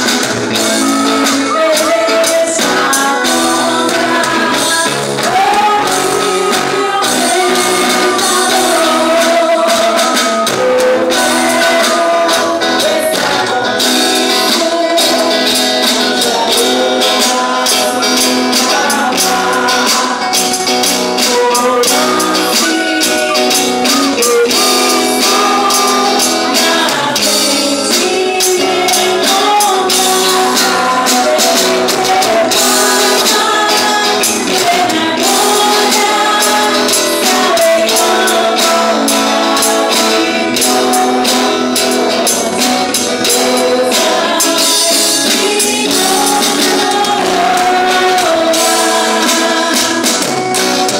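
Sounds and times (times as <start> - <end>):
small guitar strumming: 0.0 - 50.9
voices singing together: 0.0 - 50.9.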